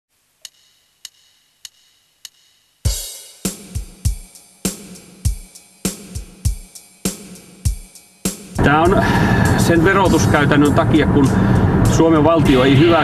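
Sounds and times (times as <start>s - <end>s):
drumstick ticks: 0.4s - 2.5s
drum kit playing a steady beat: 0.4s - 13.0s
cymbal crash: 2.9s - 13.0s.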